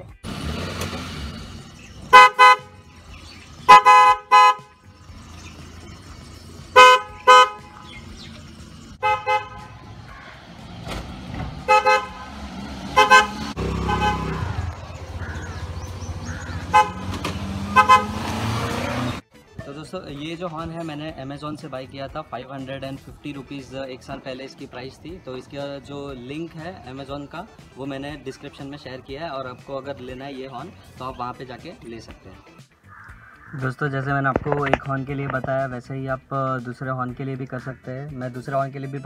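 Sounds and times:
car horn toots: 0:02.1 - 0:02.8, 0:03.7 - 0:04.8, 0:06.7 - 0:07.9, 0:09.0 - 0:09.8, 0:11.6 - 0:12.2, 0:12.9 - 0:14.6, 0:16.7 - 0:18.4.

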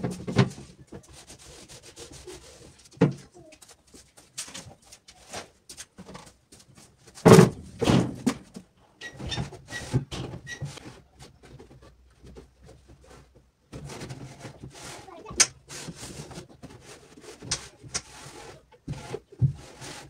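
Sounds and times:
loud thunks: 0:07.2 - 0:08.4.

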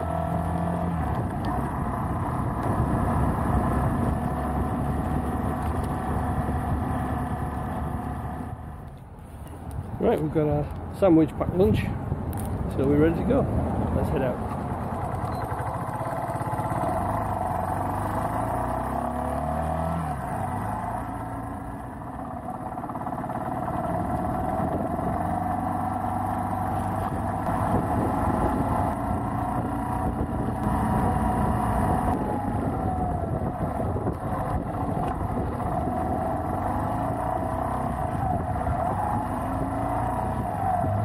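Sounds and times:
motorcycle engine running: 0:00.0 - 0:09.0, 0:13.0 - 0:41.0
steady low rumble: 0:01.0 - 0:18.4.

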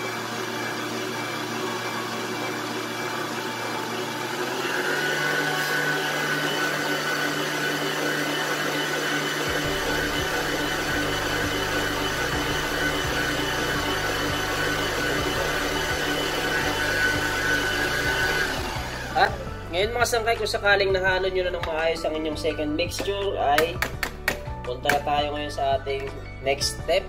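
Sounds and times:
electric stand mixer whining: 0:00.0 - 0:19.9.

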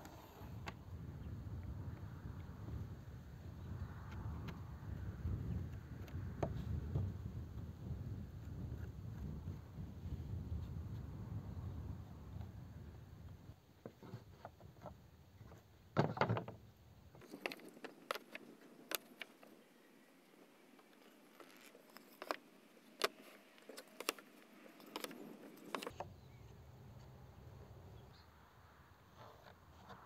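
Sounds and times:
wooden boards knocking and clattering: 0:15.9 - 0:16.6.

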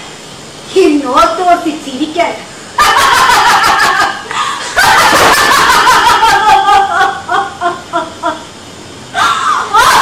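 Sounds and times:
woman laughing loudly: 0:02.8 - 0:08.5, 0:09.2 - 0:10.0.

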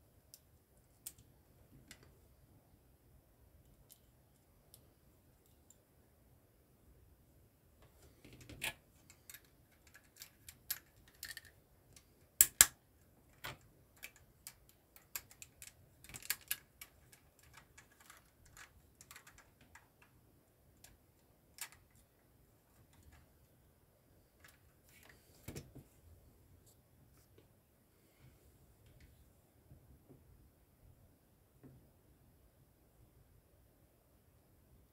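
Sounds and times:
plastic bricks clicking together: 0:08.4 - 0:20.1.

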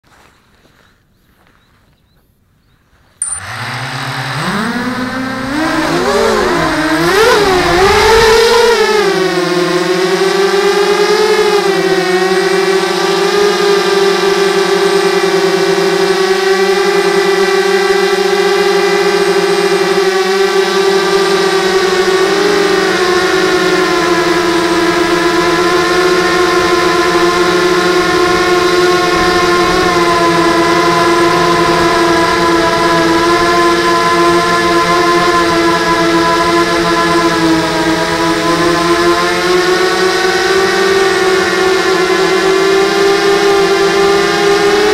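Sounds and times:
drone motors whining: 0:03.2 - 0:44.9.

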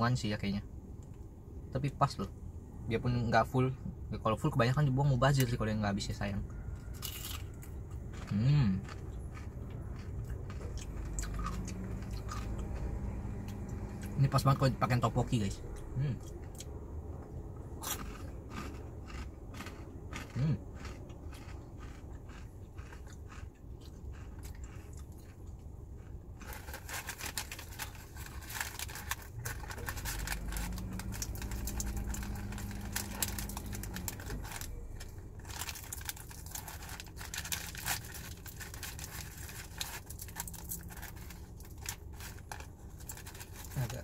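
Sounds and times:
low steady hum: 0:00.0 - 0:44.0
crunching and chewing: 0:06.1 - 0:44.0
plastic crinkling: 0:26.4 - 0:44.0.

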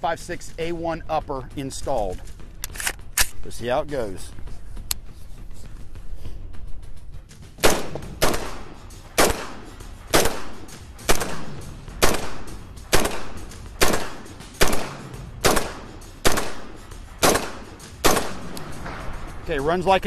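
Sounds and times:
rifle single shots: 0:07.6 - 0:19.2.

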